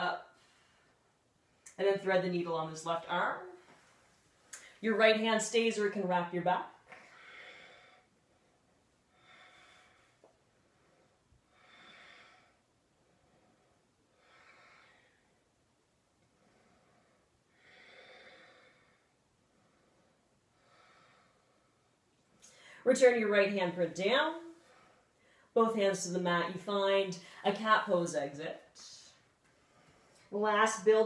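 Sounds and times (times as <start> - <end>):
woman breathing slowly: 6.9 - 15.6, 16.2 - 22.9, 24.5 - 25.6, 29.1 - 30.3.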